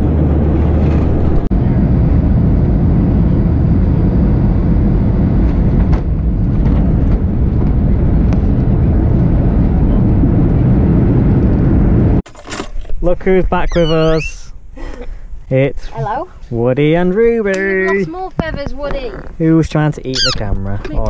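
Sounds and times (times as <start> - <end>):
jet engine and air noise in cabin: 0.0 - 12.2.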